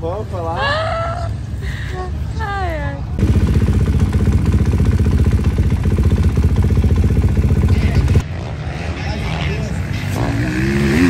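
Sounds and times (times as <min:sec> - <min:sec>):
motocross bike engine running: 0:03.2 - 0:08.2.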